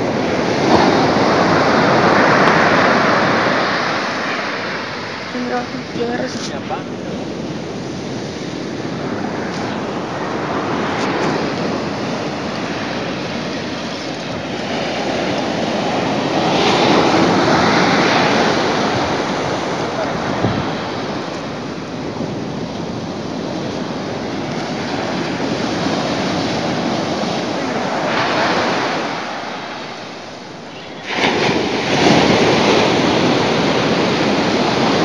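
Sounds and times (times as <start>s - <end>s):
ocean surf breaking on beach: 0.0s - 35.0s.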